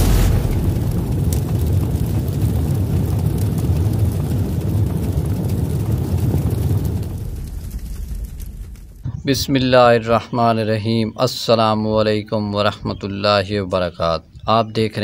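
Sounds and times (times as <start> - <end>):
low rumbling roar: 0.0 - 9.3.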